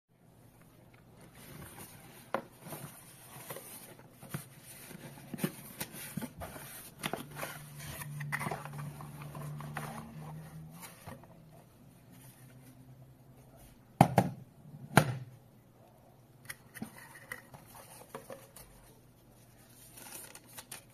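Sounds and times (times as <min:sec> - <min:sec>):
cardboard and plastic rustling: 0:00.8 - 0:12.8, 0:16.8 - 0:20.9.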